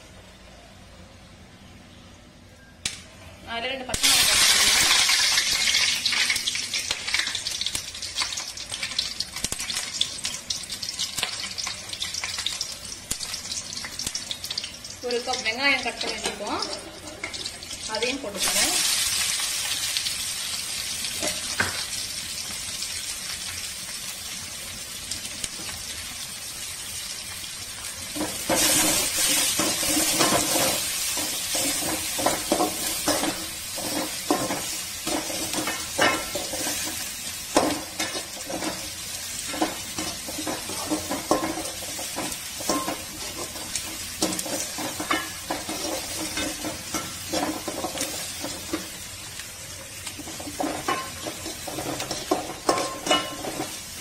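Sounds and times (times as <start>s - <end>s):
onions sizzling in hot oil: 3.5s - 54.0s
metal spatula scraping a pan: 28.2s - 37.0s, 37.6s - 48.7s.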